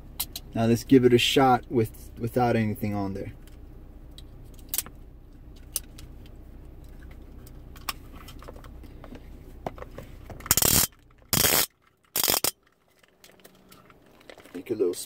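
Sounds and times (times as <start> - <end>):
cables rasping through lock: 10.4 - 14.3.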